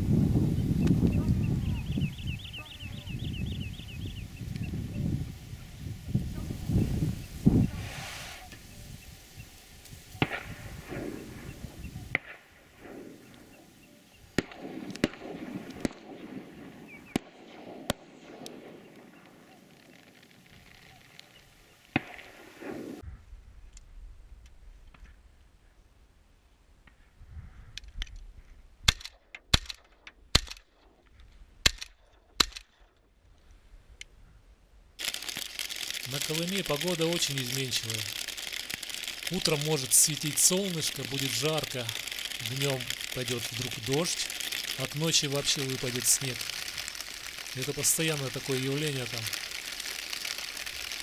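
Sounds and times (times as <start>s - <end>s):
shotgun shots: 10.2s - 11.5s, 14.4s - 19.2s, 21.9s - 23.0s.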